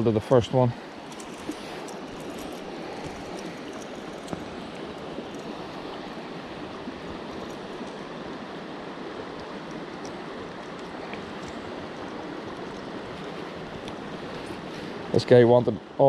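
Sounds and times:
river water flowing: 0.0s - 16.0s.

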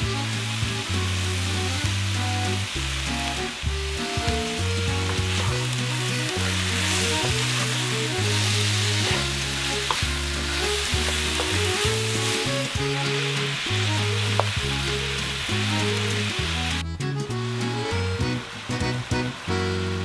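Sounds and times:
background music with bass: 0.0s - 20.0s
meat and onions sizzling: 0.0s - 20.0s
wooden spoon stirring: 4.4s - 13.5s.

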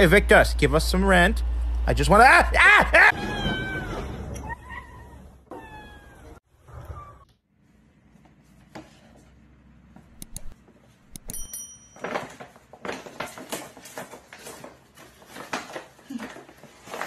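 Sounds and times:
light clicks: 10.2s - 11.4s
paper bag rustling and crinkling: 12.0s - 17.0s.

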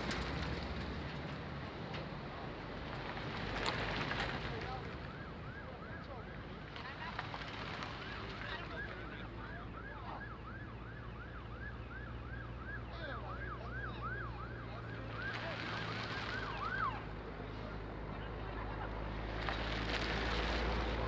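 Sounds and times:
car passing by: 6.7s - 9.1s, 13.7s - 21.0s
siren in fast yelp: 8.5s - 15.4s, 16.3s - 17.1s.

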